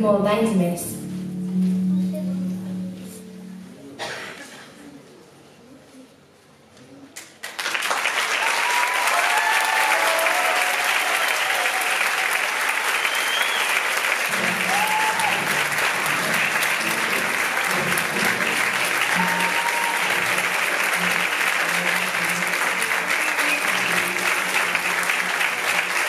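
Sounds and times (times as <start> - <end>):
audience applause: 7.2 - 26.0.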